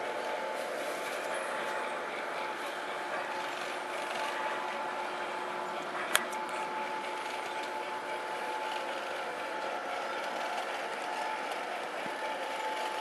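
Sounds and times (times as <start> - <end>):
model train running on track: 0.0 - 13.0.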